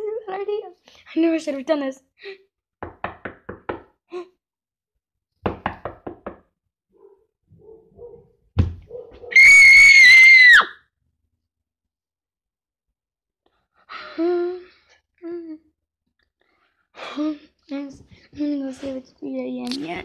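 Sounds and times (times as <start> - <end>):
high-pitched scream: 9.3 - 10.8.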